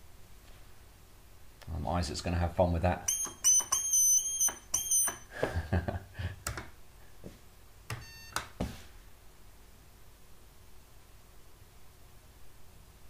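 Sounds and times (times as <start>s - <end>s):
brief beep: 3.1s - 5.3s, 8.0s - 8.4s
high-pitched alarm bursts: 3.1s - 5.3s
clicks: 6.4s - 6.7s.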